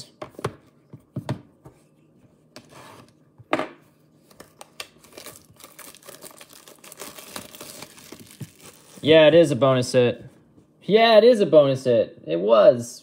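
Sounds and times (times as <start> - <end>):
shrink wrap crinkling and tearing: 4.2 - 9.2.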